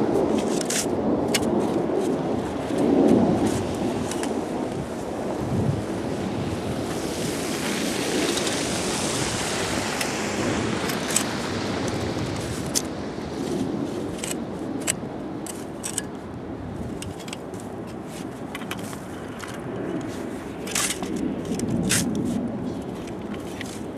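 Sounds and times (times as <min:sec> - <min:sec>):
steady background noise: 0:00.0 - 0:23.9
snow shovel scraping: 0:00.3 - 0:04.4, 0:17.1 - 0:19.0, 0:19.9 - 0:23.9.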